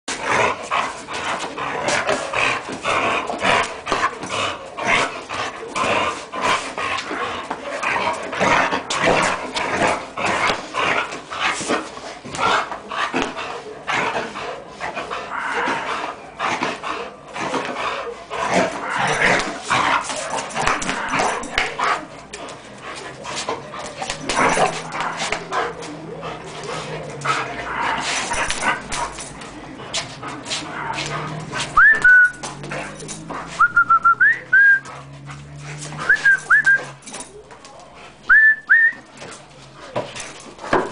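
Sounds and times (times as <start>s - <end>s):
dog growling and barking: 0.1s - 11.2s, 12.3s - 22.2s, 23.1s - 29.4s, 30.2s - 31.8s.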